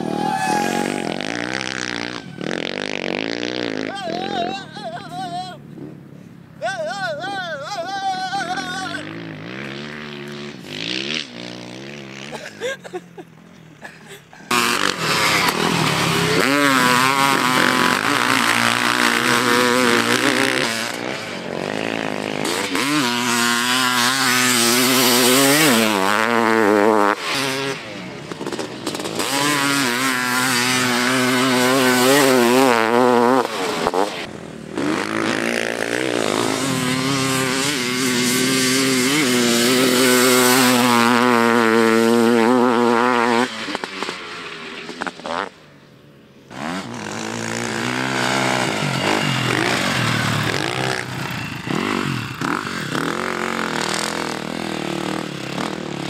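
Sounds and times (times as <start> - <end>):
dirt bike engine revving: 0.0 - 6.1, 7.8 - 56.0.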